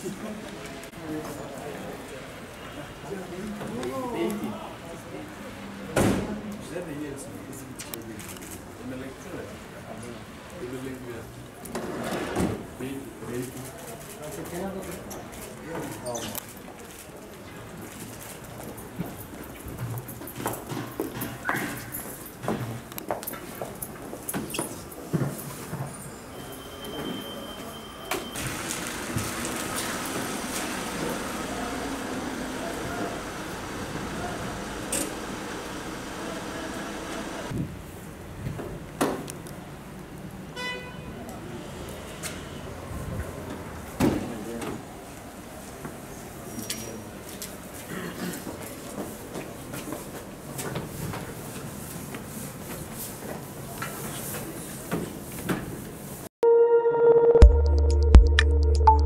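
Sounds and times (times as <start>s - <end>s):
outdoor background noise: 0.0s - 56.3s
footsteps of people walking: 14.8s - 26.2s, 47.2s - 55.5s
traffic hiss: 28.4s - 38.0s.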